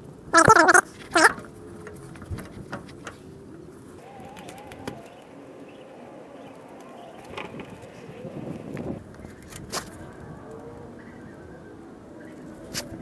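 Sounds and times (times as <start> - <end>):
bird low wavering call: 4.0 - 7.2.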